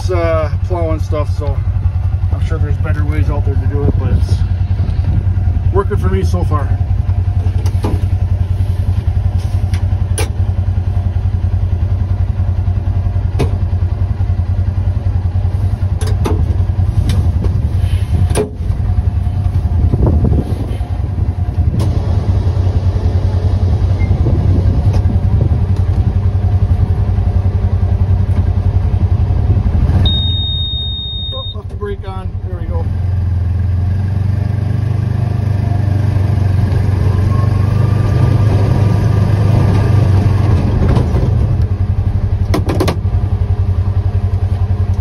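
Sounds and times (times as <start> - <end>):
utility vehicle engine running: 0.0 - 45.0
sharp knocks: 42.5 - 43.1.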